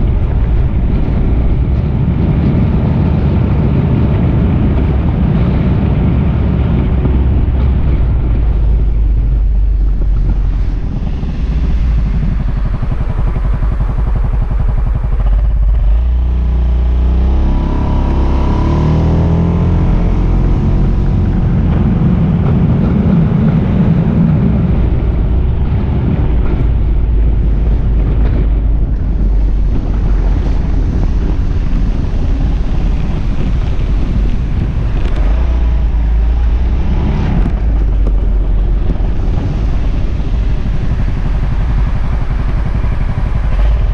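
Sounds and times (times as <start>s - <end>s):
scooter engine running: 0.0s - 43.9s
wind buffeting microphone: 0.0s - 43.9s.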